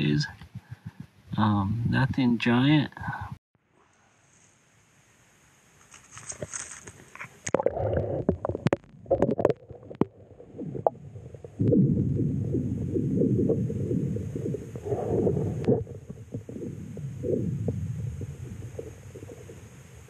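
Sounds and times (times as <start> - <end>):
low underwater rumble: 7.5 - 20.0.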